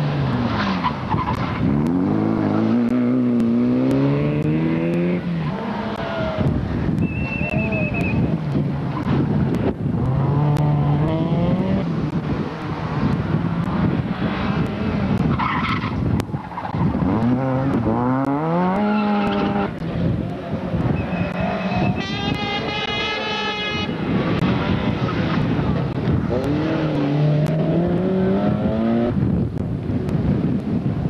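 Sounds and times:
tyres skidding on gritty tarmac: 0.0s - 23.4s
rally car engines revving: 0.0s - 31.0s.

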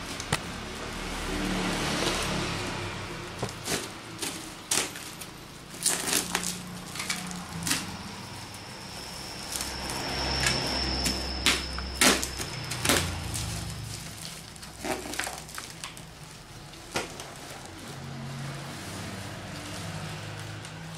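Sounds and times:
plastic wrap and cardboard crinkling: 0.0s - 20.9s
packing tape ripping: 3.4s - 7.9s, 11.5s - 17.8s
thin high steady whine: 7.0s - 14.5s.

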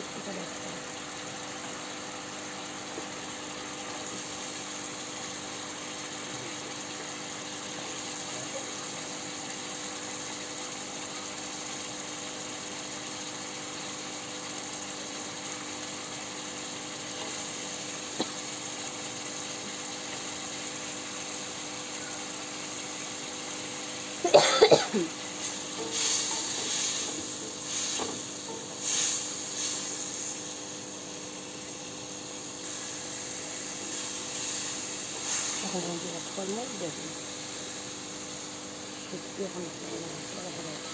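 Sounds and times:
potatoes sizzling in hot oil: 0.0s - 40.9s
person coughing: 24.2s - 25.2s.

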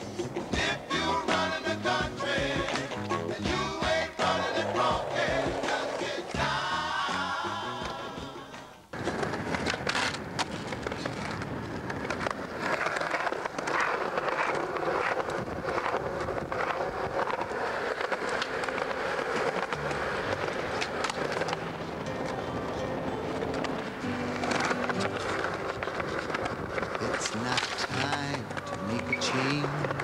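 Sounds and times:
skateboard clacking: 0.0s - 30.0s
skateboard wheels rolling on concrete: 0.0s - 30.0s.

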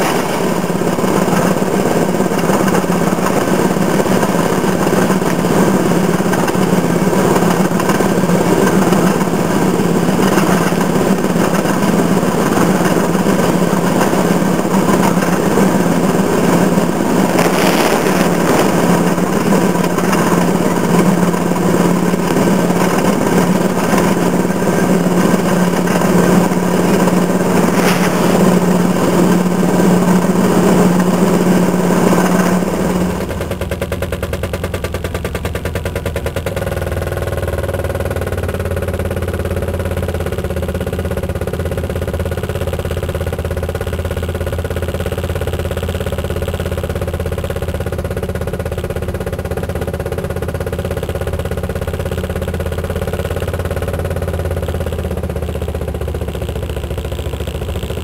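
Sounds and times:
rail car rattling on rails: 0.0s - 43.8s
small engine droning: 0.0s - 58.0s.

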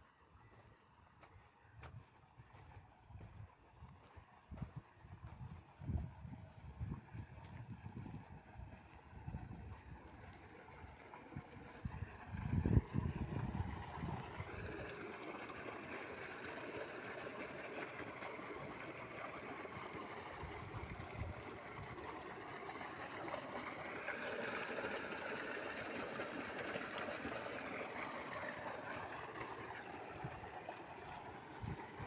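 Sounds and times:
water gushing into a tank: 2.2s - 32.0s.

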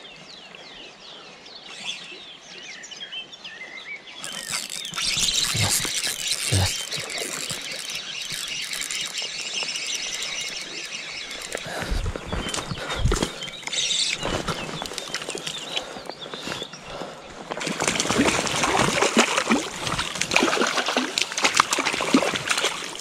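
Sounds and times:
songbirds chirping: 0.0s - 23.0s
fishing reel whirring: 4.2s - 15.9s.

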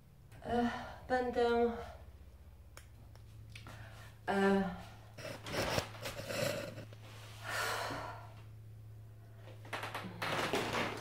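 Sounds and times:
woman breathing and sighing: 3.6s - 8.5s
rustling and handling noise: 5.2s - 7.3s.

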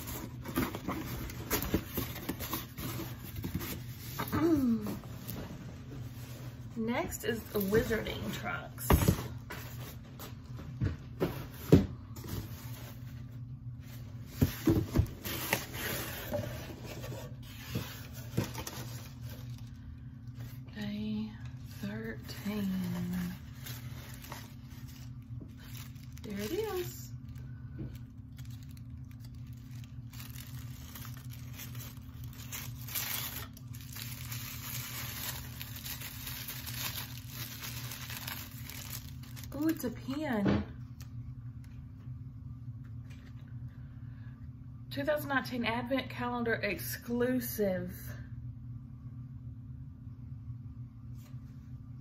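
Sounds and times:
tissue paper crinkling: 12.3s - 20.6s, 21.7s - 40.2s.

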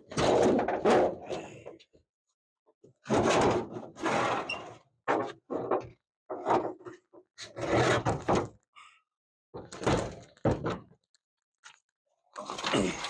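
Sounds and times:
metal thunks and rattling clunks: 0.0s - 1.7s, 3.0s - 7.0s, 9.6s - 10.9s.

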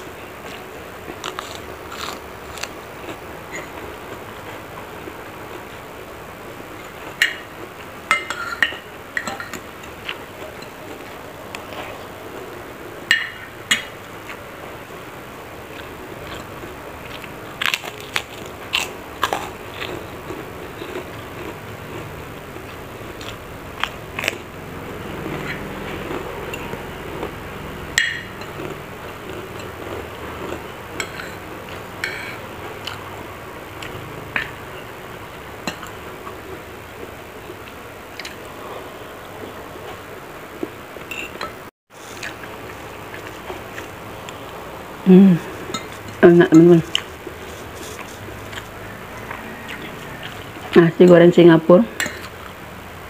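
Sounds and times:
chewing: 0.4s - 4.6s, 15.7s - 33.1s, 33.8s - 34.6s, 40.6s - 44.6s, 46.8s - 50.8s
cutlery clinking on a plate: 8.1s - 9.6s, 32.0s - 32.4s, 41.1s - 41.6s, 52.0s - 52.3s.

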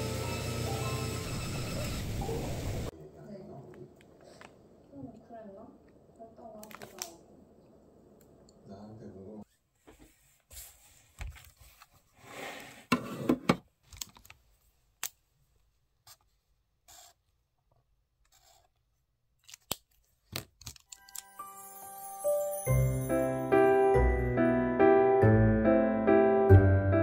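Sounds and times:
bell-toned music: 21.0s - 25.7s.

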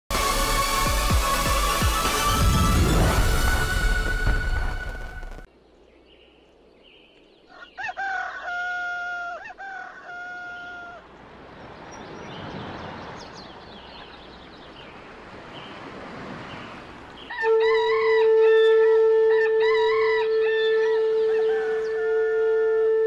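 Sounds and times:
recorded rooster crowing: 7.5s - 11.1s, 17.3s - 18.6s, 19.3s - 22.8s.

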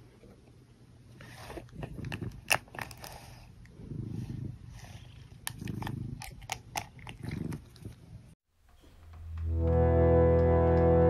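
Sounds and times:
cat purring: 3.1s - 8.4s.

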